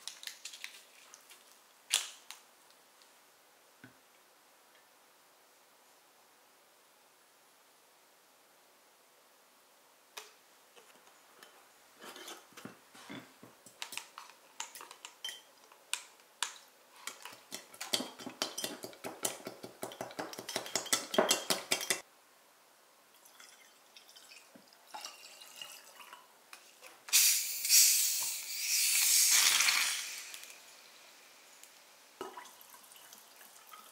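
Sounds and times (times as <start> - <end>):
spoon clinking in glass mug: 14.7 - 15.5
sparkling water fizzing: 27.1 - 33.9.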